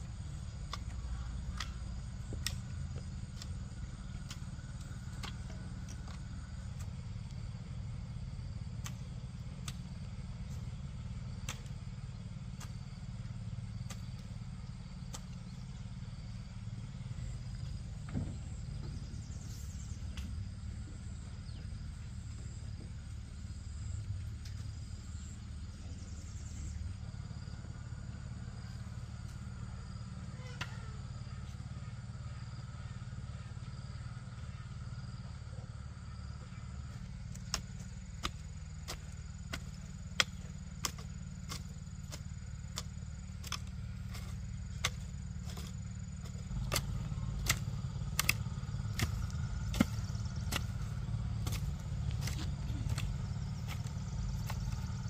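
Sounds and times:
blade chopping bamboo: 0.2s - 7.4s, 8.7s - 15.7s, 36.9s - 55.0s.

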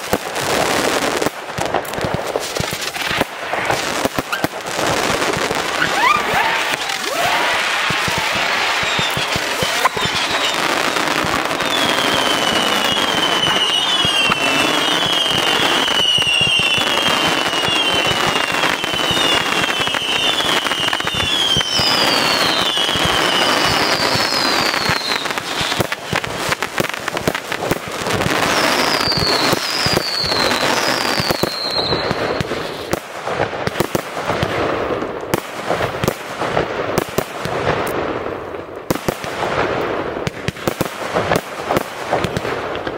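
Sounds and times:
fireworks crackling: 0.0s - 42.9s
fireworks cracks and bangs: 0.0s - 42.9s
fireworks whistles: 2.5s - 33.0s.

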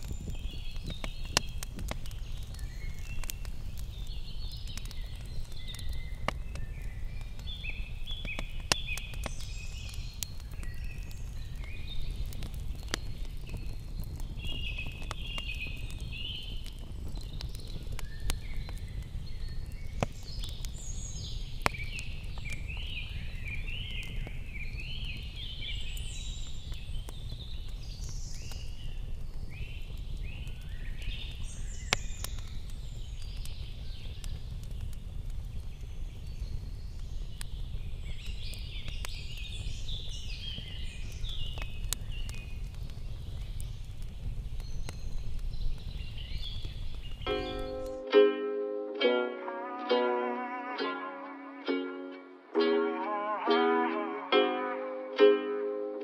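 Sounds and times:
campfire crackling and popping: 0.0s - 56.0s
birds chirping: 46.0s - 56.0s.

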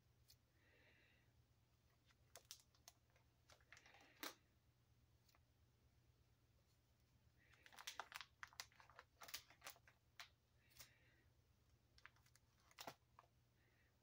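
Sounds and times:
plastic binder pages crinkling: 1.9s - 4.4s, 7.5s - 11.1s, 11.8s - 13.3s.

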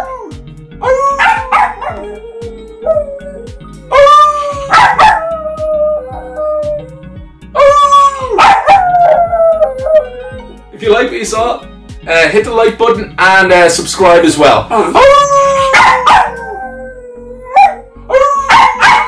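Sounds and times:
dog howling: 0.0s - 10.5s, 15.0s - 19.0s
man howling: 0.0s - 10.5s, 14.9s - 19.0s.

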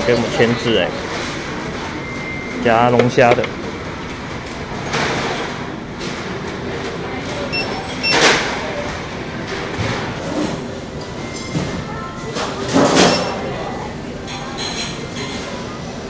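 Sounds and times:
crowd chatter: 0.0s - 16.0s.

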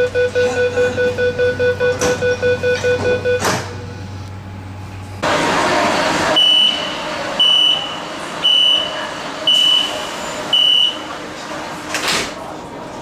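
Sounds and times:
high door warning beeps: 0.0s - 3.7s, 6.4s - 11.1s.

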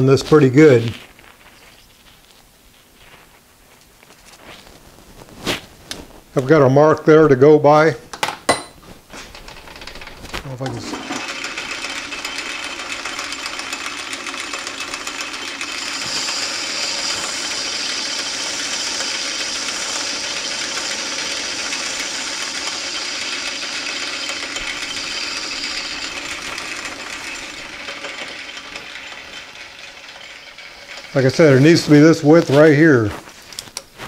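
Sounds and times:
metal lathe running: 9.3s - 32.8s
high hissing cutting sound: 14.8s - 29.4s, 31.1s - 33.0s.

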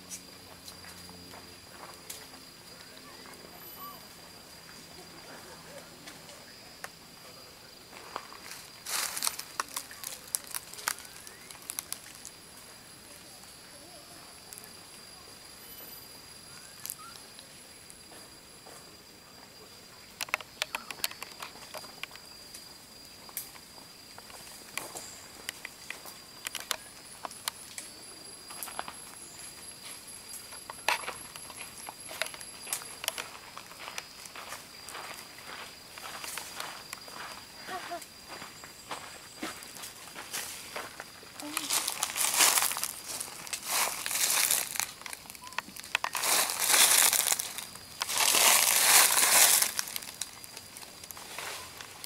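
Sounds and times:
high insect drone: 0.0s - 52.0s
twigs and dry leaves crackling: 7.9s - 13.6s, 14.3s - 18.1s, 20.1s - 38.5s, 39.3s - 52.0s
dry leaves crunching: 8.5s - 12.4s, 41.4s - 52.0s.

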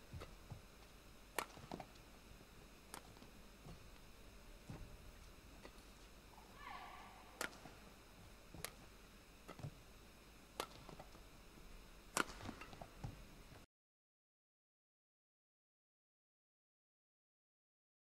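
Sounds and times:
racket hitting shuttlecock: 1.4s - 1.8s, 6.9s - 7.8s, 12.2s - 12.8s.

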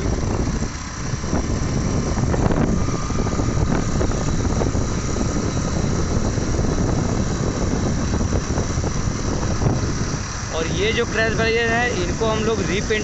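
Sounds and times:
vehicle running and road noise: 0.0s - 13.0s
wind buffeting microphone: 0.0s - 13.0s.

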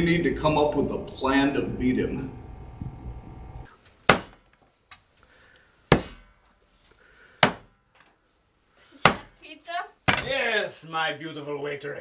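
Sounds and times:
cleaver chopping on wooden board: 4.1s - 4.4s, 5.9s - 6.3s, 7.4s - 7.7s, 9.0s - 9.3s.

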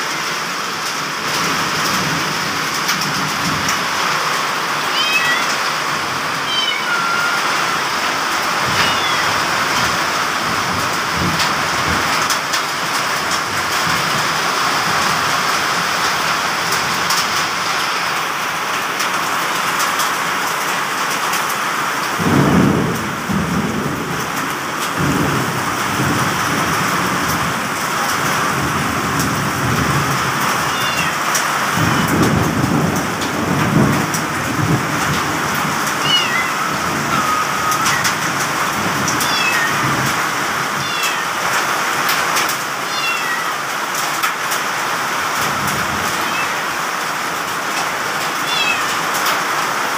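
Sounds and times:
heavy rain pouring: 0.0s - 49.9s
thunder rumbles: 1.2s - 19.5s, 22.0s - 42.6s.

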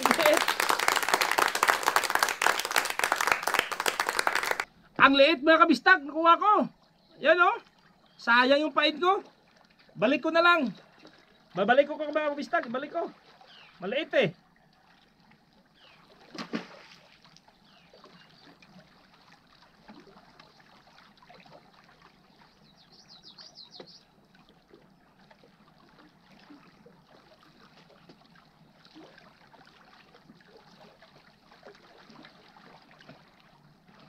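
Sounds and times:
small waves lapping rocks: 9.0s - 34.0s
fish splashing into water: 16.0s - 22.2s
high bird chirps: 22.7s - 24.0s.

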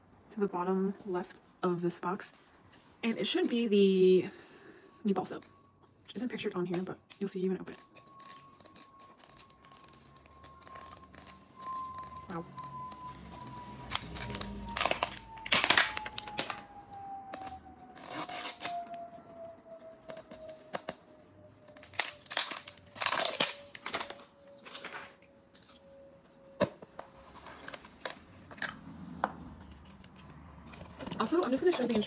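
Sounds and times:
plastic wrap crinkling and tearing: 6.7s - 19.1s, 21.6s - 25.8s.

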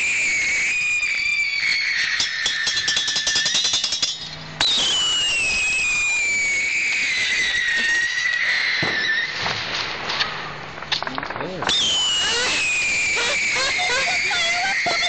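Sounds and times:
whistle sliding down in pitch: 0.0s - 3.8s, 4.6s - 9.4s, 11.7s - 15.0s
firework whistle: 0.0s - 9.6s, 11.6s - 15.0s
firework crackling: 0.0s - 15.0s.

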